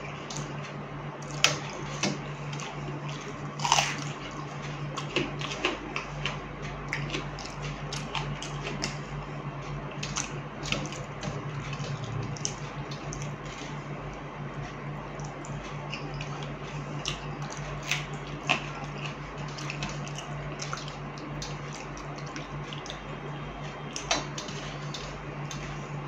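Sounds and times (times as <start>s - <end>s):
wet chewing and slurping: 1.2s - 9.1s, 10.0s - 13.9s, 15.1s - 23.0s.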